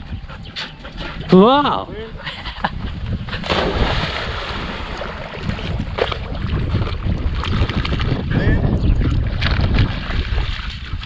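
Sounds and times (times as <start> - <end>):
wind on microphone: 0.0 - 11.0
water splashing and sloshing: 2.8 - 8.3, 9.0 - 11.0.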